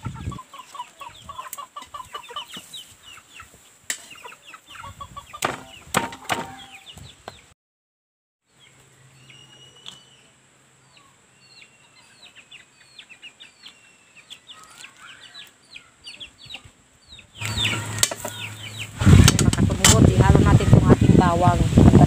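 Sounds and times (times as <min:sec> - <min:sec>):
chicks peeping: 0:00.0 - 0:07.5, 0:08.5 - 0:22.0
loud rushing noise: 0:17.4 - 0:22.0.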